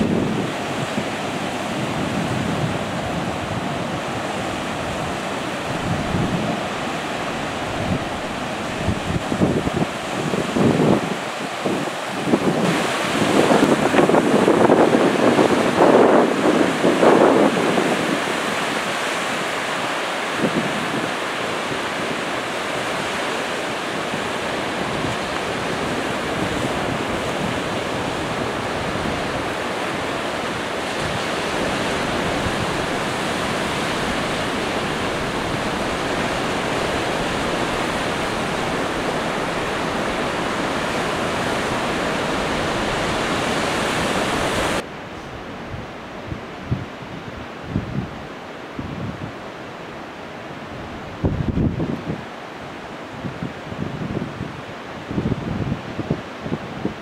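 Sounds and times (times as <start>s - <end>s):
waves breaking on beach: 0.0s - 57.0s
wind on microphone: 0.0s - 57.0s.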